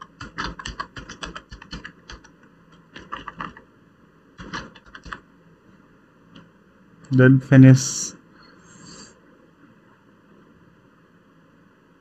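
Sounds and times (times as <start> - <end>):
keyboard typing: 0.0 - 3.6, 4.4 - 5.2.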